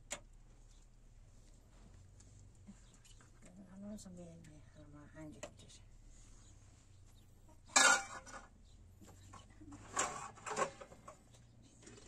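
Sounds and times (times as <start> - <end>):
dishes and spoons clattering: 7.7 - 8.5.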